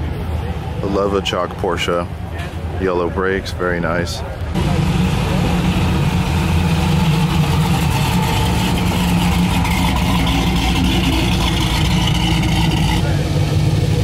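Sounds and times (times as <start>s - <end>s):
car engine rumbling past: 4.5s - 14.0s.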